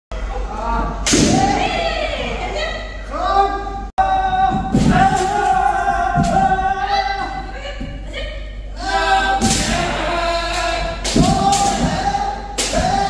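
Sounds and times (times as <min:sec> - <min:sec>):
people shouting high-pitched: 0:00.4 - 0:13.0
bamboo sword strikes: 0:01.0 - 0:01.6, 0:09.4 - 0:09.9, 0:11.0 - 0:13.0.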